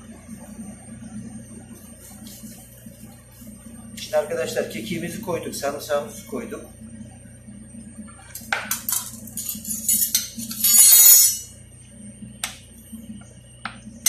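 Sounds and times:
knife clinking on plate: 9.4 - 11.5.

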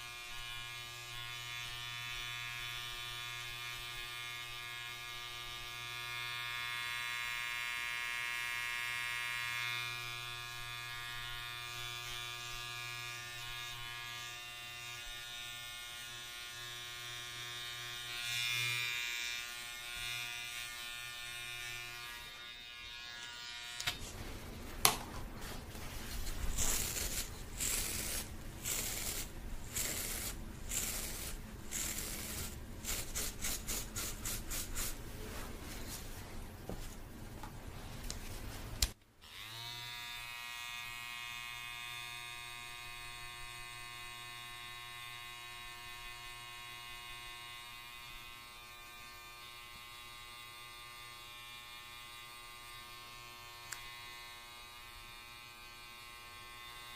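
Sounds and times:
electric hair clipper buzzing: 0.0 - 24.0, 26.5 - 35.0, 39.2 - 56.9
quick rubbing strokes: 25.4 - 36.2.

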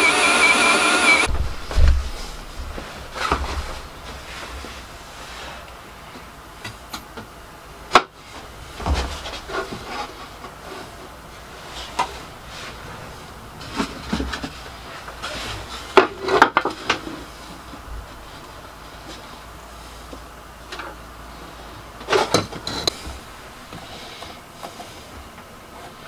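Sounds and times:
wood scraping: 0.2 - 6.3, 8.2 - 19.3.

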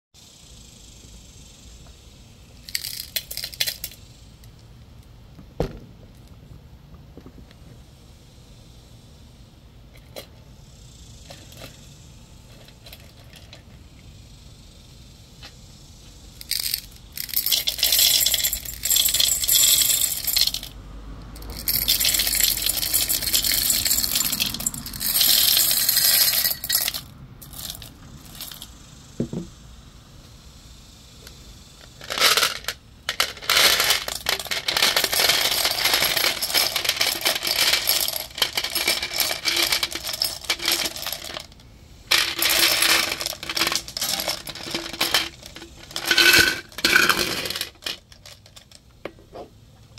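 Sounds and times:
glass cubes clinking: 2.7 - 4.0, 16.5 - 20.7, 21.4 - 28.6, 32.0 - 41.5, 42.1 - 48.5
pebbles clattering into bowl: 2.7 - 4.0, 16.4 - 20.7, 21.4 - 28.6, 31.9 - 48.7.

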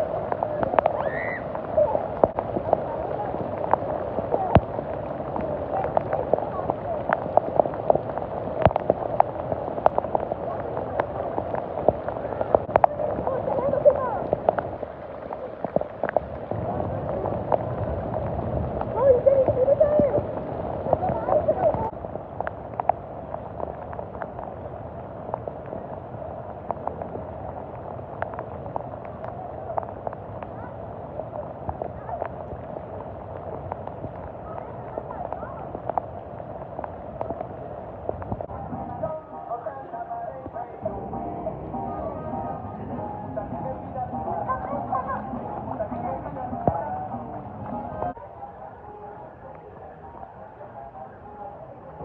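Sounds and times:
drips and splashes: 0.0 - 39.4
heavy rain on water: 0.0 - 52.0.

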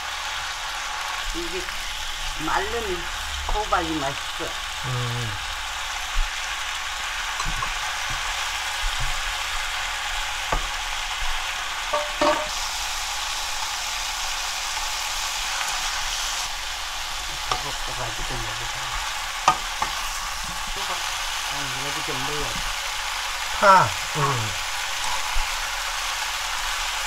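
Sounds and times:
squash sizzling in a pan: 0.0 - 27.0
utensils knocking against pan: 11.9 - 12.6.

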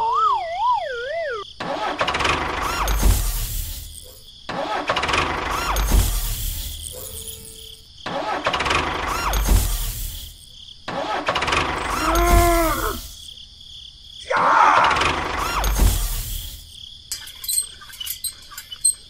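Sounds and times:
tractor engine cranking and revving: 1.6 - 13.2, 14.8 - 19.0
voice-like cry: 11.8 - 13.2, 14.2 - 15.2.

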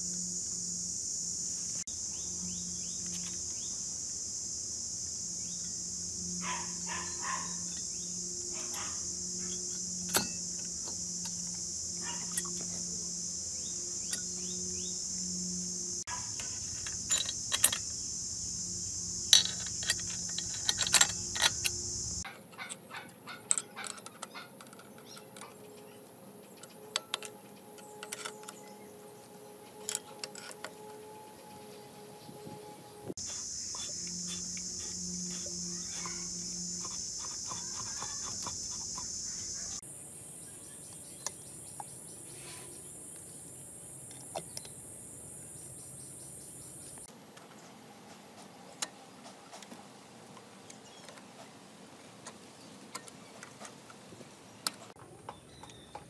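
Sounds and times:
high-pitched insect drone: 0.0 - 43.1, 45.0 - 49.8
sharp metal clicks and clinks: 10.1 - 11.4, 16.3 - 18.0, 19.3 - 32.8.

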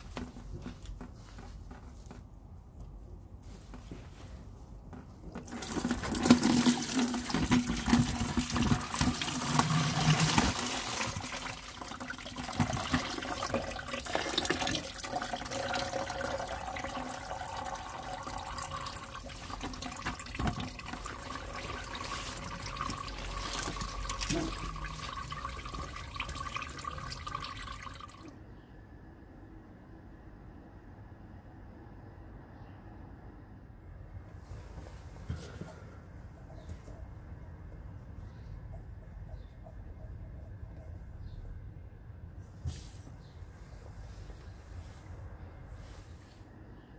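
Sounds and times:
coolant pouring into a tray: 5.4 - 28.3.

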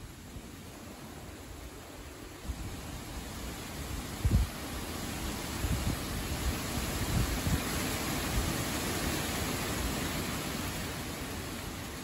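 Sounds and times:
leaves rustling in wind: 0.0 - 12.0
wind buffeting microphone: 3.8 - 9.0.

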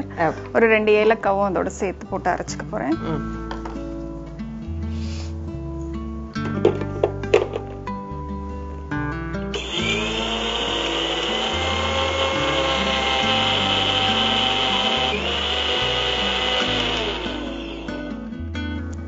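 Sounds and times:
background music: 0.0 - 19.0
mixer grinder motor grinding: 9.5 - 18.3.

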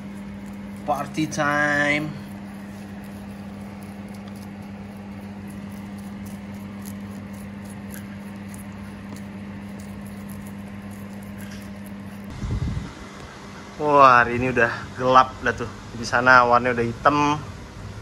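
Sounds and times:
small pets crunching leaves: 0.0 - 12.3
steady low hum: 0.0 - 18.0.

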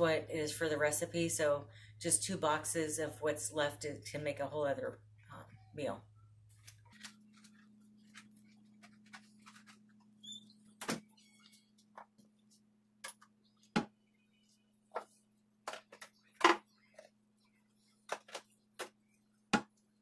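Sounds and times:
kitchen items knocking and clicking: 15.0 - 16.7.

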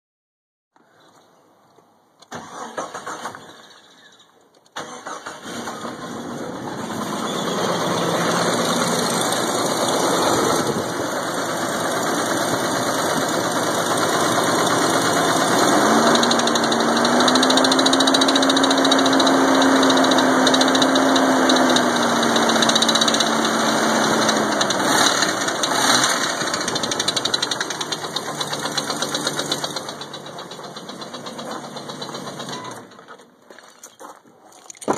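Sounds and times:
engine cranking and knocking: 4.8 - 33.3.

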